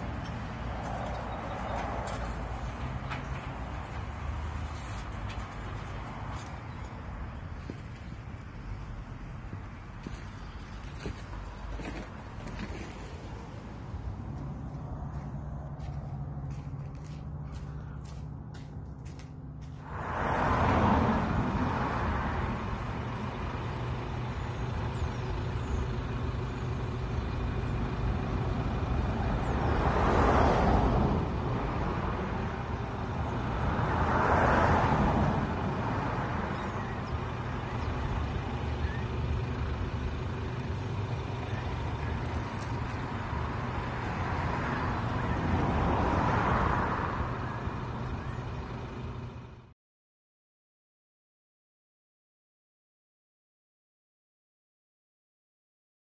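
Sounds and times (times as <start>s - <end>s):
traffic rumble: 0.0s - 49.8s
vehicles passing: 0.0s - 49.8s.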